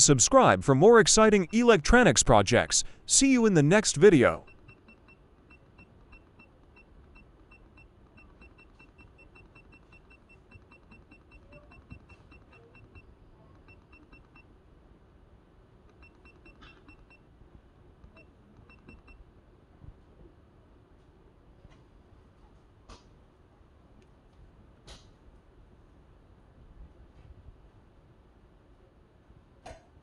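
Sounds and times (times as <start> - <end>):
electronic key beeps: 4.1 - 13.0.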